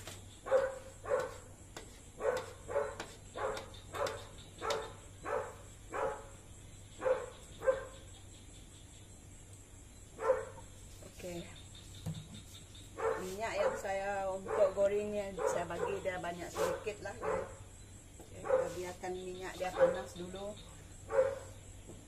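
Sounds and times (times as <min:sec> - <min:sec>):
dog barking: 0:00.4 - 0:01.4, 0:02.2 - 0:06.3, 0:07.0 - 0:08.0, 0:10.2 - 0:10.6, 0:13.0 - 0:14.8, 0:15.4 - 0:17.6, 0:18.4 - 0:18.8, 0:19.7 - 0:20.2, 0:21.1 - 0:21.6.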